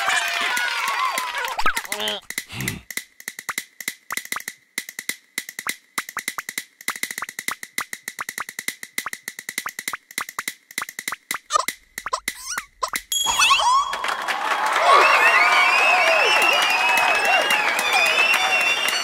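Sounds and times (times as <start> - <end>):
castanets clicking: 1.9 - 13.1.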